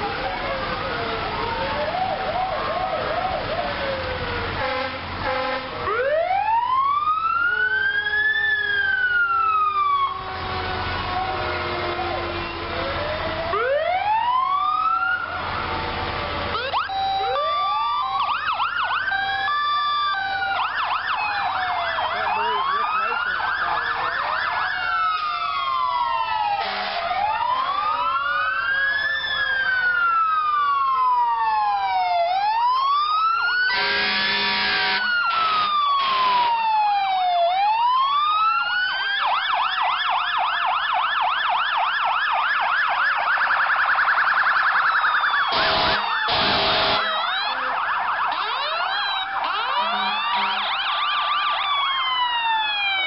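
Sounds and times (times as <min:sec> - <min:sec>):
fire truck sirens wailing and yelping: 0:00.0 - 0:53.0
loud horn blasts: 0:04.6 - 0:05.8, 0:26.6 - 0:27.2, 0:33.7 - 0:36.5, 0:45.5 - 0:47.3, 0:49.4 - 0:50.8.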